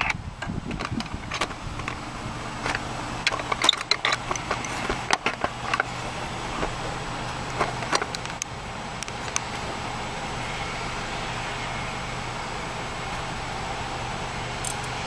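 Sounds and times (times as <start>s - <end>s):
socket wrench clicking: 2.7s - 5.9s.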